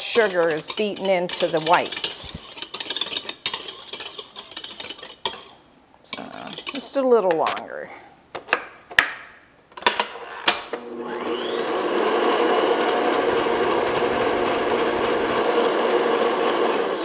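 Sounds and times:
stand mixer motor whine: 10.8s - 17.0s.

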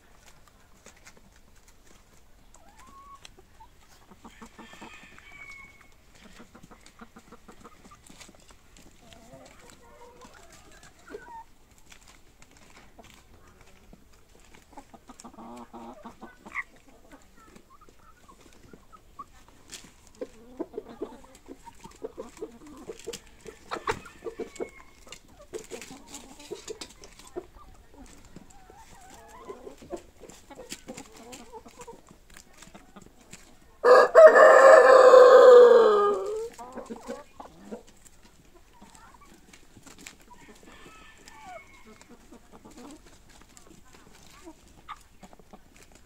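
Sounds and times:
chickens clucking softly: 0.0s - 46.0s
rooster crowing: 4.3s - 5.9s, 33.8s - 36.4s, 40.6s - 42.1s.

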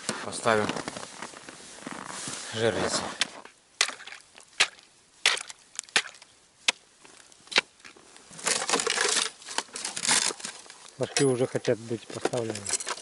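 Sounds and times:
rustling scrape: 0.0s - 3.5s, 8.0s - 13.0s
ice knocks and crunches: 0.1s - 11.3s.

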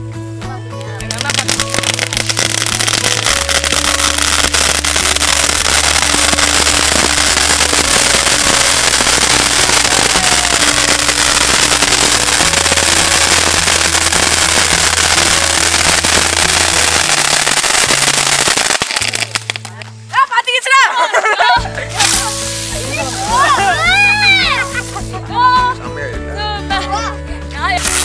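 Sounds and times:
music with stepping bass line: 0.0s - 18.6s
fireworks hissing and crackling: 0.8s - 19.9s, 21.9s - 25.2s, 27.7s - 28.0s.

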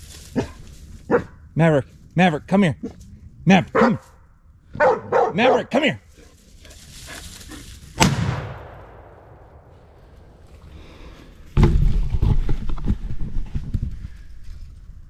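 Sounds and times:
rifle shot with echo: 8.0s - 10.4s.

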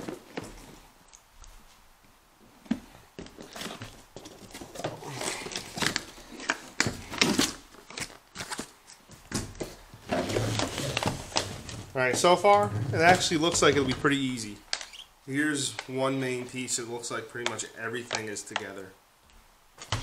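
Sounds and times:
cardboard rustling and crinkling: 2.6s - 15.0s.

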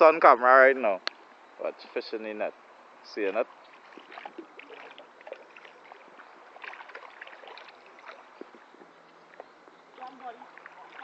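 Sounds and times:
shallow water running: 3.0s - 11.0s
fish splashing in a net: 3.6s - 8.6s, 10.0s - 11.0s.

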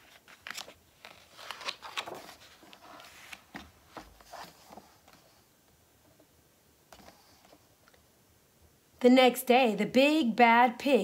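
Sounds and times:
book page turning: 0.0s - 5.4s.

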